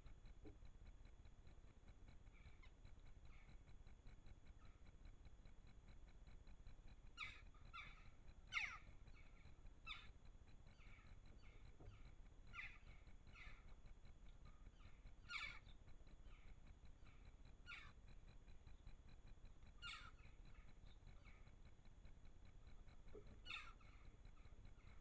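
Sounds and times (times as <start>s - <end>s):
jackdaws calling: 7.2s - 13.8s, 14.4s - 18.0s, 19.7s - 21.5s, 23.2s - 25.0s.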